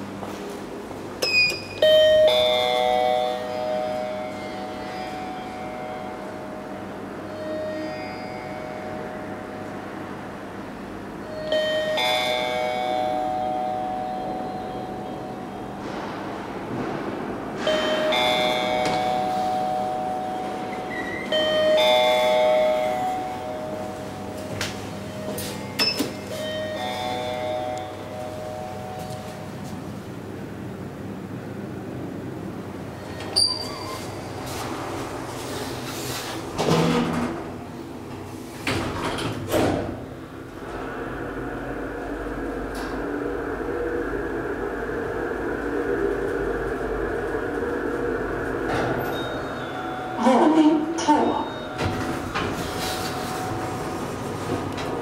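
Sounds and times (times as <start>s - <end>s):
two-note elevator chime: 1.3s - 10.1s, 11.2s - 16.0s, 17.6s - 29.6s, 48.7s - 53.9s.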